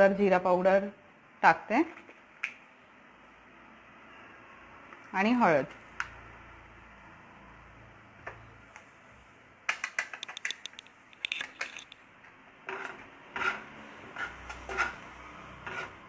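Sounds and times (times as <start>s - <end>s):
spoon metallic clicks: 9.8s - 12.0s
ladle scraping a pan: 12.7s - 16.0s.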